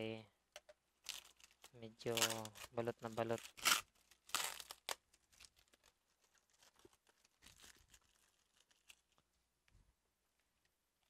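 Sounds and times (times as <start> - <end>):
plastic wrapping crinkling and tearing: 1.0 - 9.4.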